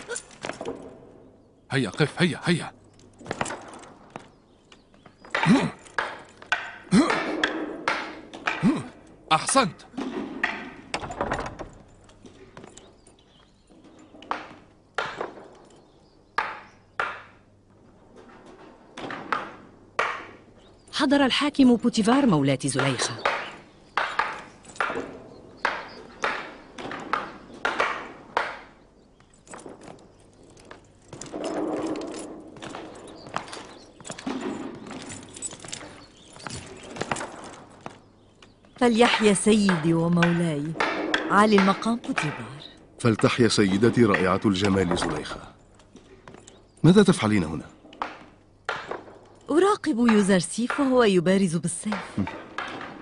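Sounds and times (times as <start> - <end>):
wooden swords clacking: 3.1 - 11.3, 22.8 - 38.6.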